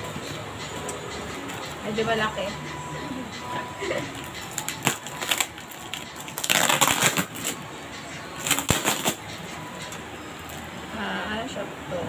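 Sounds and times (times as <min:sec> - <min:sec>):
plastic wrapping crinkling: 0:04.1 - 0:07.6, 0:08.3 - 0:09.4.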